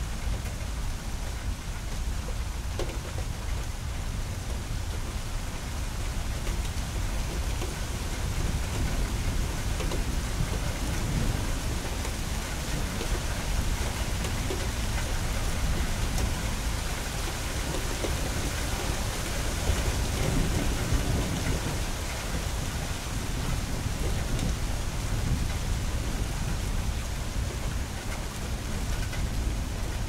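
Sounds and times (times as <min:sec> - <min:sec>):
rain on hard surfaces: 0:00.0 - 0:30.0
thunder rumbling: 0:16.0 - 0:27.9.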